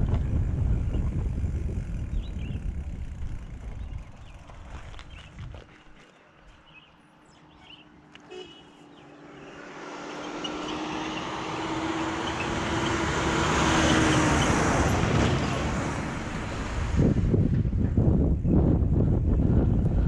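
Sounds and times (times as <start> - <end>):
steady engine hum: 0.0 - 20.0
van passing close by: 8.8 - 18.2.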